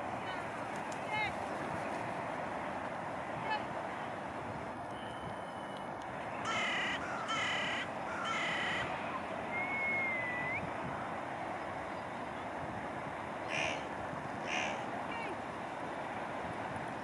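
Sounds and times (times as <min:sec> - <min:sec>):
crow cawing: 0:06.4 - 0:09.0, 0:13.5 - 0:13.9, 0:14.5 - 0:14.8.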